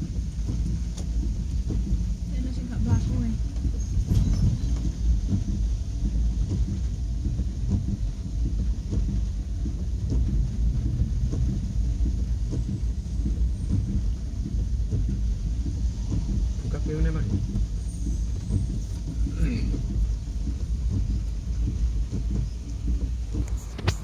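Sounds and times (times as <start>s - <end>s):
heavy rain falling: 0.0s - 24.0s
steady low rumble: 0.0s - 24.0s.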